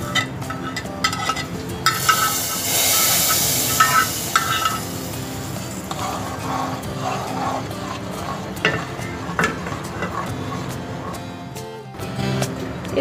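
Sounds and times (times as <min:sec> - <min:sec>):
metal spoon scraping frying pan: 0:00.0 - 0:11.6
spoon stirring in pot: 0:00.0 - 0:11.6
hiss of food in hot milk: 0:02.0 - 0:07.8.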